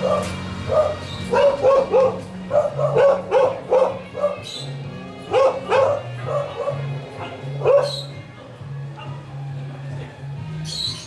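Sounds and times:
dog barking: 0.0s - 4.6s, 5.3s - 8.1s, 8.9s - 9.2s
background music with low notes: 0.0s - 11.0s.

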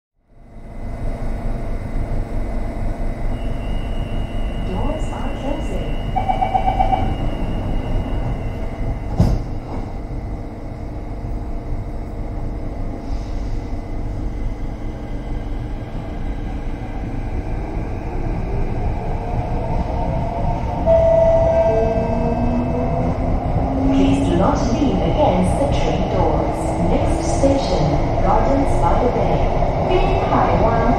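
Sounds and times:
low train rumble: 0.2s - 30.9s
train traction inverter whine: 0.2s - 30.9s
pulsing beep: 3.4s - 8.6s, 20.9s - 22.1s.

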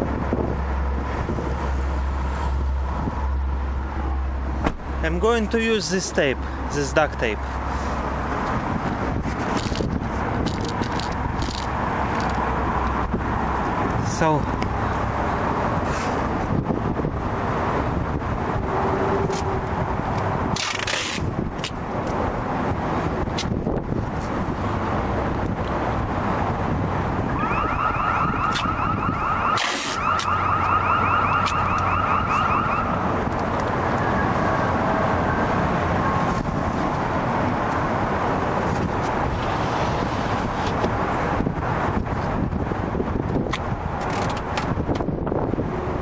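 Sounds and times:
wind buffeting microphone: 0.0s - 5.0s, 7.5s - 20.6s, 21.2s - 46.0s
duct tape pulled and torn: 9.2s - 13.0s, 19.2s - 19.5s, 20.1s - 22.2s, 23.3s - 23.6s, 28.4s - 28.7s, 29.5s - 30.4s, 31.4s - 32.4s, 33.3s - 34.1s, 43.4s - 45.1s.

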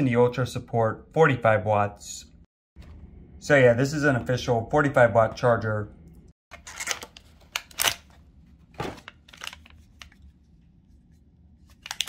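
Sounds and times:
packaging scraping and rustling: 6.6s - 8.2s, 8.8s - 10.2s.

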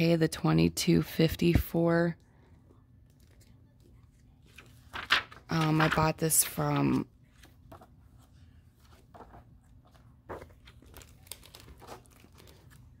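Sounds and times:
book pages rustling: 3.1s - 13.0s.

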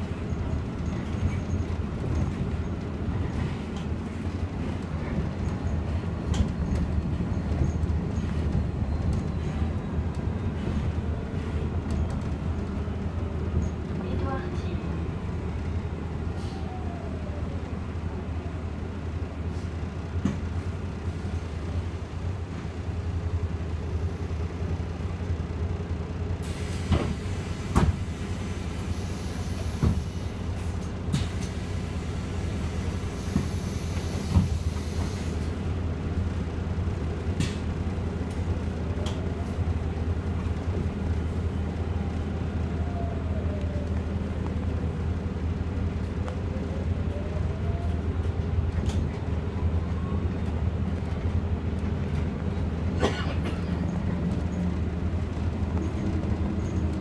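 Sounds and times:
bus drivetrain rumble: 0.0s - 57.0s
hiss: 31.2s - 35.5s.

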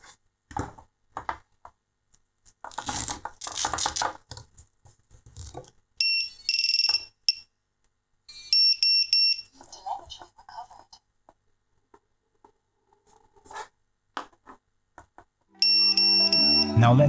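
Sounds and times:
short electronic beeps: 15.6s - 16.9s.

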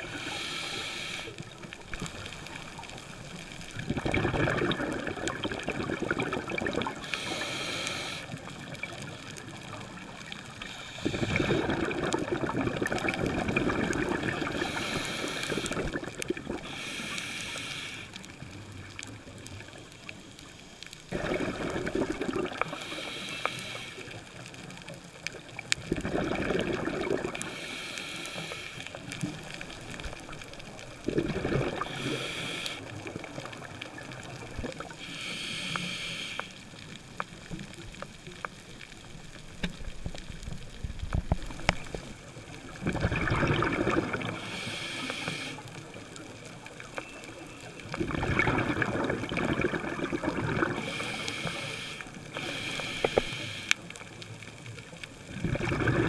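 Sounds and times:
regulator inhale hiss: 0.0s - 3.7s, 6.8s - 8.8s, 10.6s - 11.9s, 14.4s - 18.5s, 22.6s - 24.8s, 27.4s - 29.8s, 31.8s - 33.5s, 34.8s - 36.9s, 44.2s - 46.5s, 50.7s - 54.0s
exhaled air bubbling: 0.0s - 20.0s, 21.1s - 56.0s.

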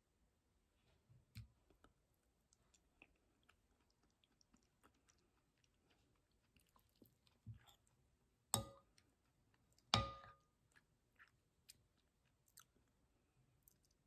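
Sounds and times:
metal spoon clinking on bowl: 8.6s - 8.8s, 10.0s - 10.4s.

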